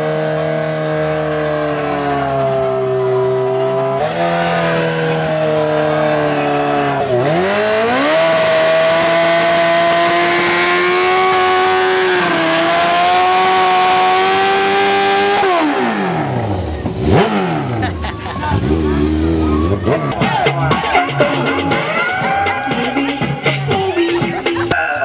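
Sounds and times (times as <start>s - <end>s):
motorcycle engine revving high: 0.0s - 23.6s.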